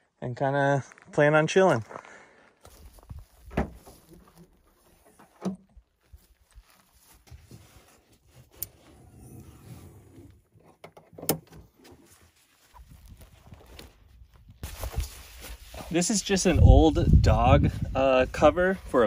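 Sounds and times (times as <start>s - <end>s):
clunks and clicks of hatch trim: 10.6s - 11.8s.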